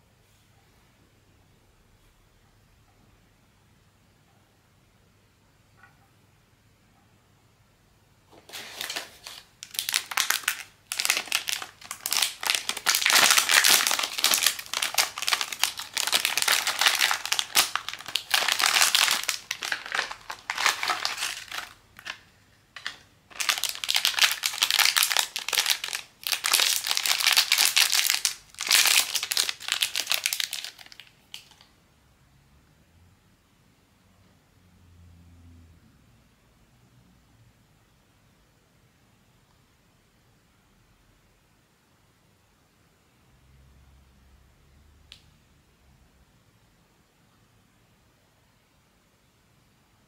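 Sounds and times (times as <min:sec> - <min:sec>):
plastic packaging crinkling: 0:08.3 - 0:31.7.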